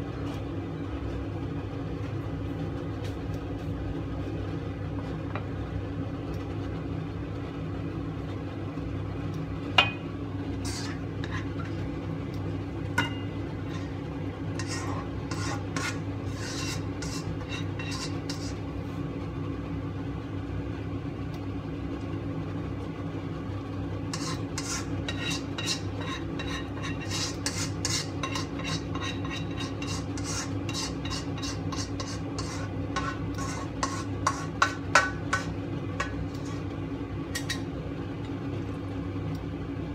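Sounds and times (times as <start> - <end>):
steady low hum: 0.0 - 39.9
metal utensil scraping steel pan: 10.6 - 11.9, 13.0 - 18.6, 24.1 - 36.7.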